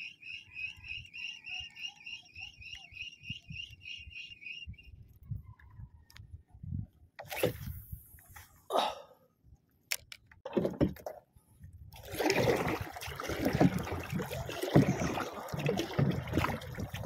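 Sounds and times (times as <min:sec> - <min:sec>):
water sloshing against boat hull: 0:10.4 - 0:17.0.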